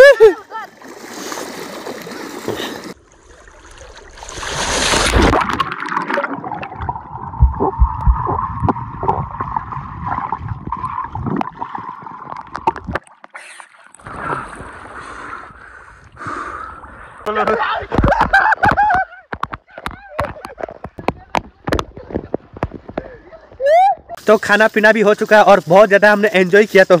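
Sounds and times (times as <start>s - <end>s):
water splashing: 0.0s - 18.9s
underwater gurgling and bubbling: 5.1s - 13.0s
low underwater thumps: 6.6s - 13.1s, 17.9s - 24.1s.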